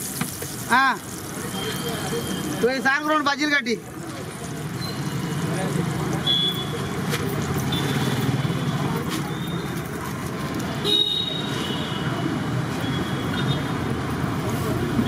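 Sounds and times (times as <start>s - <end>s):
fritters sizzling in oil: 0.0s - 15.0s
traffic rumble: 0.0s - 15.0s
vehicle horn toots: 10.8s - 12.1s.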